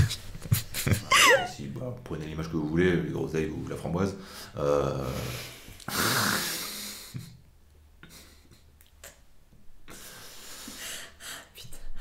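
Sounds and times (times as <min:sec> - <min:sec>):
woman laughing breathily: 0:00.6 - 0:01.5.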